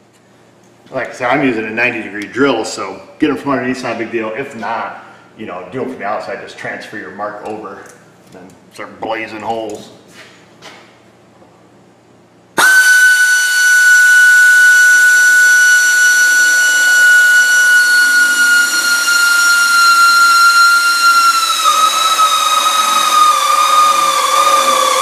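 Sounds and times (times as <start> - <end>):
drill whining through sheet metal: 12.6 - 25.0.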